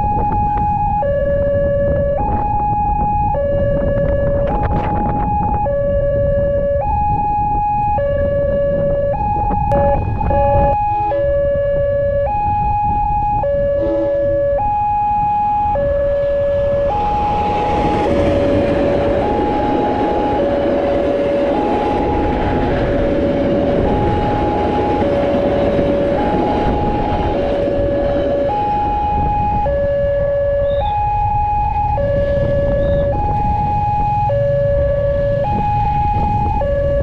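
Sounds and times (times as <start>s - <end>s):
passing train rumble: 13.5s - 14.6s, 15.2s - 37.0s.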